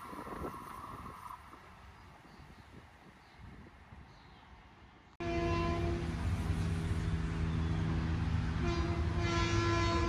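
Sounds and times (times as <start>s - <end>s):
faint wind rumble: 0.0s - 10.0s
train horn: 5.2s - 6.4s, 8.5s - 10.0s
train running rumble: 5.2s - 10.0s.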